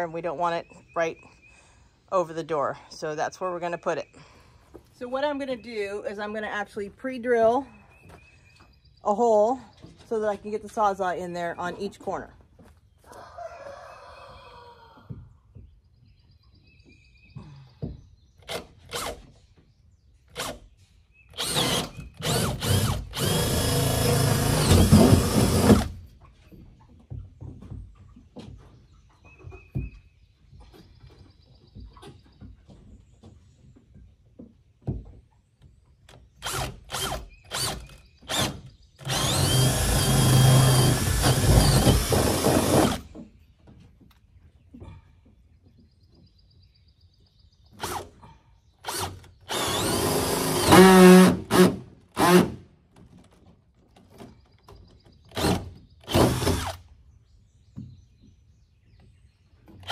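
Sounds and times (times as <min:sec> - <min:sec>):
cordless drill boring wood: 0:18.5 - 0:19.2, 0:21.3 - 0:26.0, 0:36.4 - 0:43.1, 0:47.8 - 0:48.1, 0:48.8 - 0:52.6, 0:55.3 - 0:56.8.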